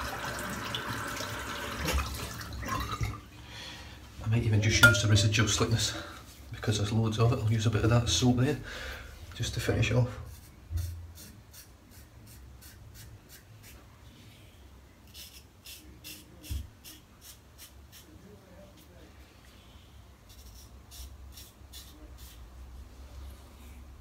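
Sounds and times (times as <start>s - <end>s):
razor scraping scalp: 10.3s - 13.8s, 15.1s - 18.2s, 20.3s - 22.4s.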